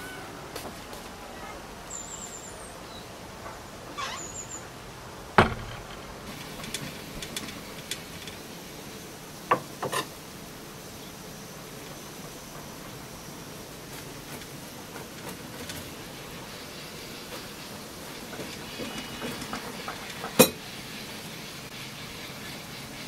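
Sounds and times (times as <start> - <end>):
sharp knocks: 5.4 - 6.1.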